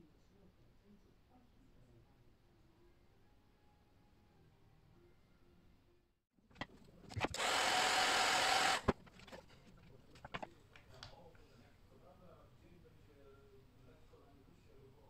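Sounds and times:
small power tool running: 7.1 - 9.1.

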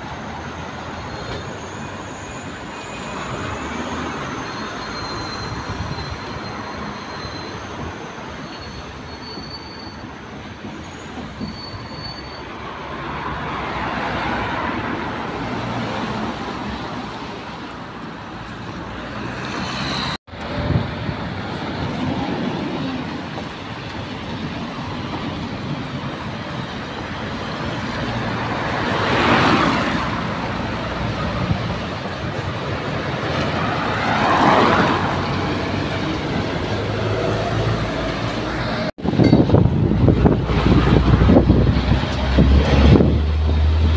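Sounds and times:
traffic on wet road: 12.4 - 43.9.

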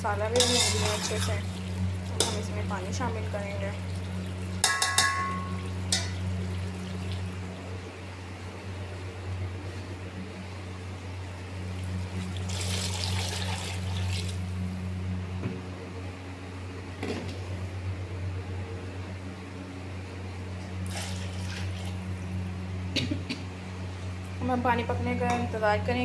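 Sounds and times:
steady low hum: 0.0 - 26.0
water pouring into cooking pot: 12.1 - 14.4, 20.8 - 22.0.

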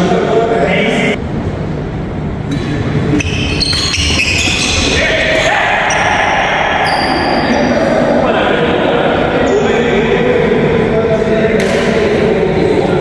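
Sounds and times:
racket striking shuttlecock: 2.5 - 4.6.

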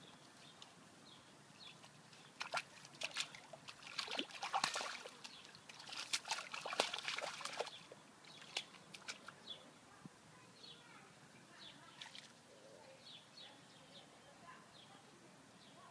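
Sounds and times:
puppy splashing in puddle: 1.7 - 9.4, 11.9 - 12.4.

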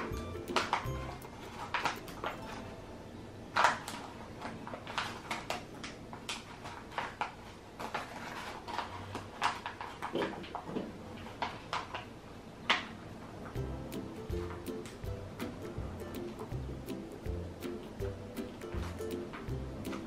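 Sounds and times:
paper crinkling: 0.0 - 2.7, 3.5 - 12.1.

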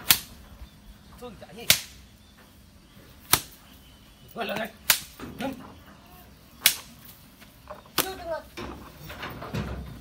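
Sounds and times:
stick striking cow: 0.0 - 0.4, 1.6 - 2.0, 3.2 - 3.6, 4.5 - 5.6, 6.6 - 7.0.

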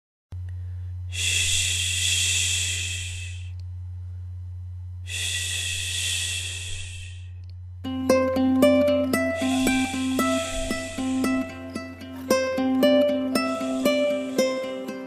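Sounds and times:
low hum: 0.4 - 15.0
airy breath-like hisses: 1.1 - 3.6, 5.1 - 7.4, 8.7 - 15.0.

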